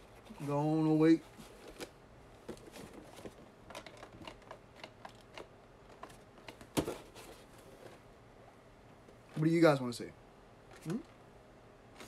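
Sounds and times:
boxes being handled: 0.0 - 8.1.

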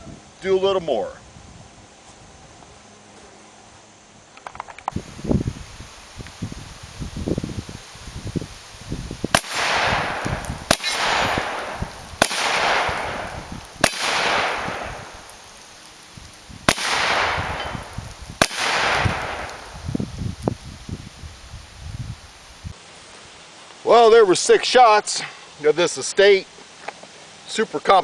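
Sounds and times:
shotgun shots: 9.3 - 15.4, 16.7 - 19.8.

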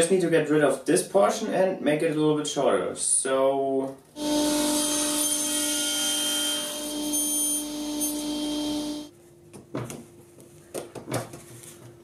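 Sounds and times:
table saw cutting plastic pipe: 4.2 - 9.1.

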